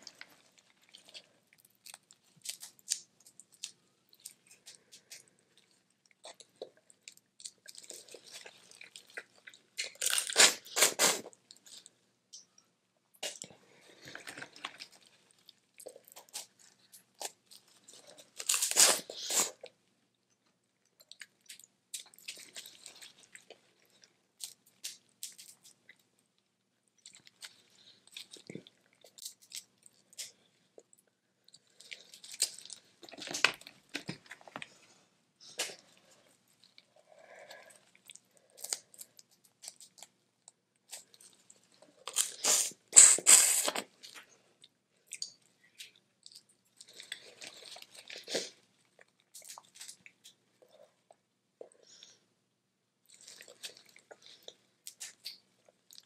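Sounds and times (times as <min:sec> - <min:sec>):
chewing: 0:00.0 - 0:12.6, 0:20.4 - 0:26.1, 0:43.7 - 0:51.8, 0:53.0 - 0:56.0.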